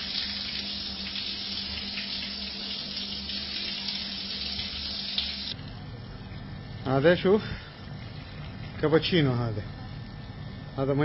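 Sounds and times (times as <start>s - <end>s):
shower water splashing on tiles: 0.0s - 5.6s
low steady hum: 0.0s - 11.0s.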